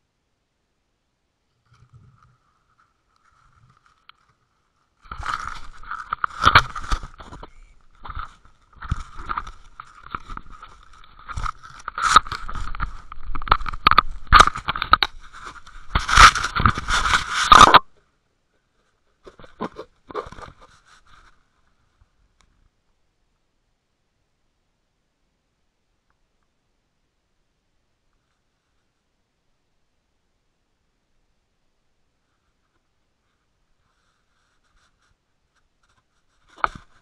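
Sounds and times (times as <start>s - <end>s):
camera housing scraping on net: 5.1s - 17.8s.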